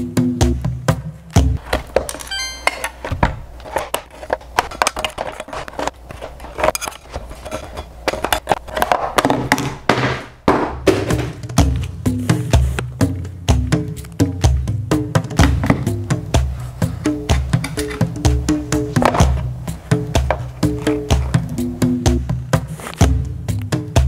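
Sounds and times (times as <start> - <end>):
background music: 2.3 - 3.1, 11.0 - 24.0.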